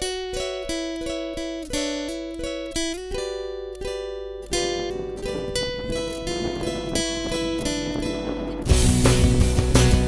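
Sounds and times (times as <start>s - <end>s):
acoustic guitar plucked melody: 0.0s - 10.0s.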